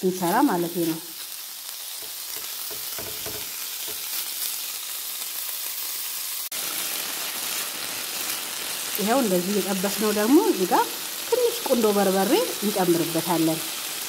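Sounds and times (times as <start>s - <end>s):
beef sizzling in a frying pan: 0.0s - 14.0s
wooden spoon knocking: 2.0s - 4.0s.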